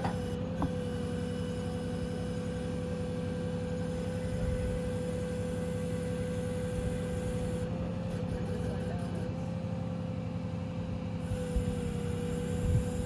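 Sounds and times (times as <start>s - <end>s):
crane engine low rumble: 0.0s - 13.0s
steady humming tone: 0.0s - 13.0s.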